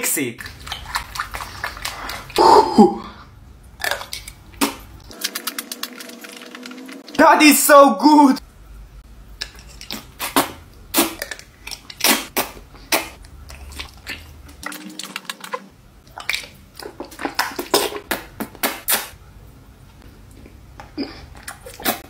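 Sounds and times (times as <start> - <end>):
person slurping and chewing noodles: 0.4 - 3.2, 3.8 - 7.2, 9.4 - 18.9.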